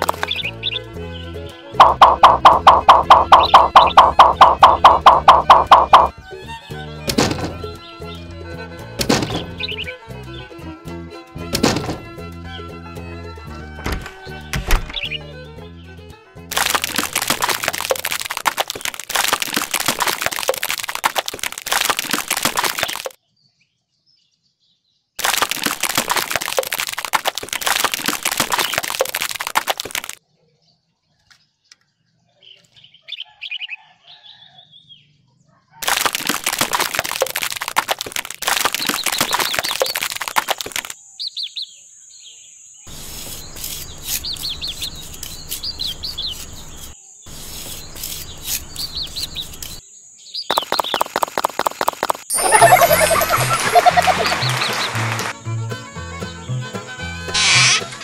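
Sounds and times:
wet cement splattering: 0.0 - 0.5, 16.5 - 23.2, 25.2 - 30.2, 35.8 - 41.0, 50.5 - 55.4
birds chirping faintly: 13.8 - 15.8, 38.7 - 51.3
trowel scraping cement: 42.9 - 49.8, 57.3 - 58.0.

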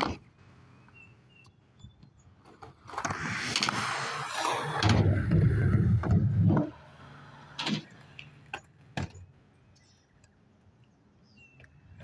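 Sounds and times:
skateboard wheels rolling on steel: 2.4 - 8.8.

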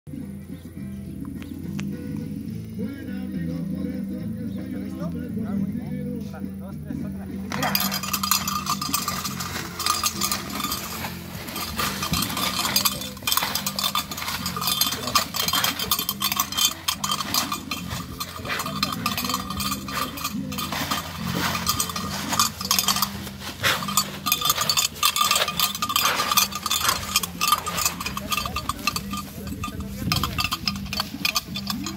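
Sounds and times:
bells clanking: 7.4 - 31.9.

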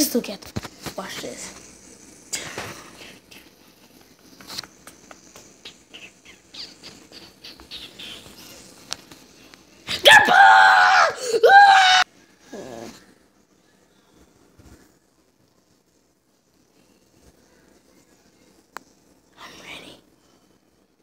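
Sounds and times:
low hiss: 0.0 - 10.1, 11.2 - 21.0
young person screaming: 9.9 - 12.1.

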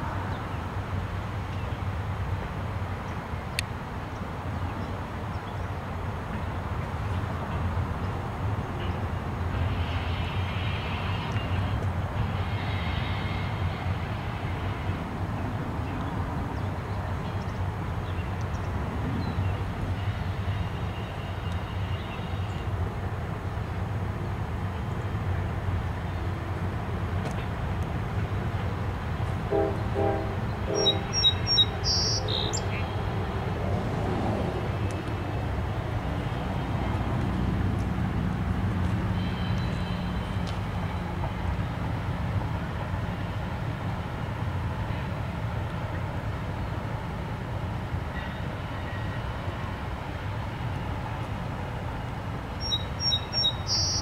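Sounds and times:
freight train rumbling on bridge: 0.0 - 54.0
bird chirping: 30.7 - 32.8, 52.6 - 54.0.

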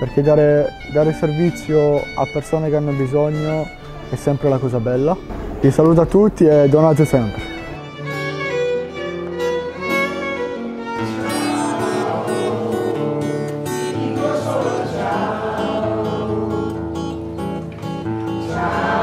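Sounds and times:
violin holding long notes: 0.0 - 17.4
acoustic guitar: 0.0 - 19.0.

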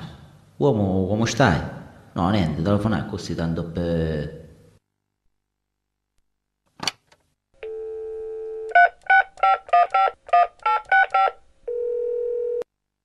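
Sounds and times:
dial tone: 7.6 - 8.9, 11.0 - 12.7.

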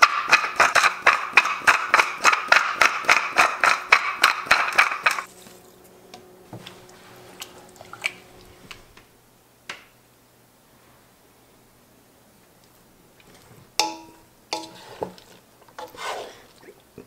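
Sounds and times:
pepper mill grinding: 0.0 - 5.3.

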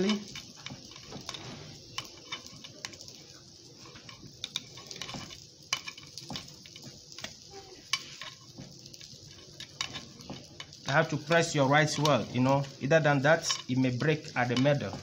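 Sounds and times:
metal spoon scraping metal mould: 3.8 - 7.3, 7.9 - 10.8.

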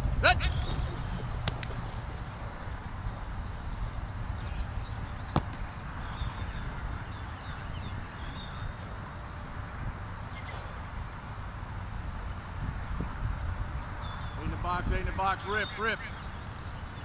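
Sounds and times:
wind noise on microphone: 0.0 - 15.4
football caught in hands: 0.6 - 2.1, 5.3 - 5.7.

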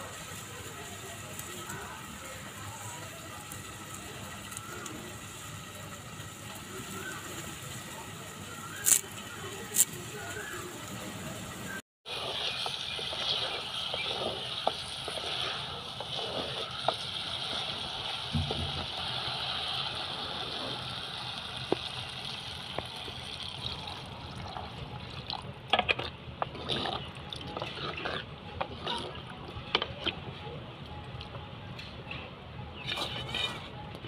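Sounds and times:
pot hissing: 0.0 - 25.0.

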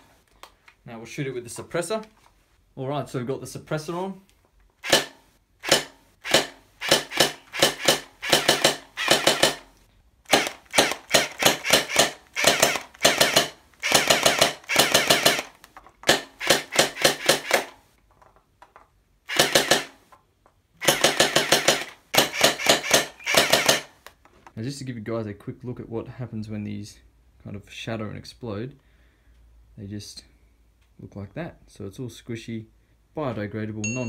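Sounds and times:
toy blaster rapid clicking shots: 4.8 - 17.8, 19.3 - 20.0, 20.8 - 24.0.

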